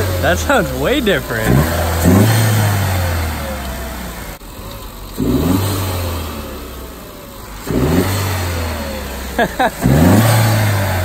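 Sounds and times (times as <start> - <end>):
car engine revving: 0.0 - 11.0.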